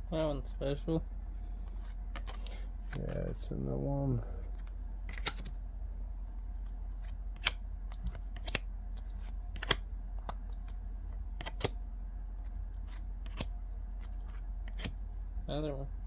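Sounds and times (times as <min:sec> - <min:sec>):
low hum: 0:00.0 - 0:16.0
cards flicking against stack: 0:04.6 - 0:05.6, 0:07.0 - 0:11.8, 0:12.8 - 0:15.0.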